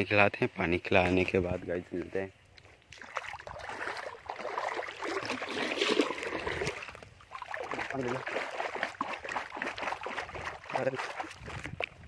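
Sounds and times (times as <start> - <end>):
water splashing in bucket: 2.9 - 12.0.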